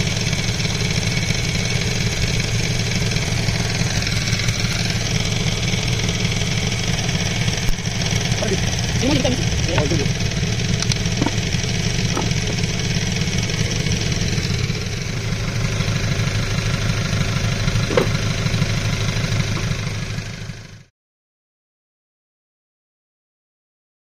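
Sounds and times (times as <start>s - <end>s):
engine running: 0.0s - 20.9s.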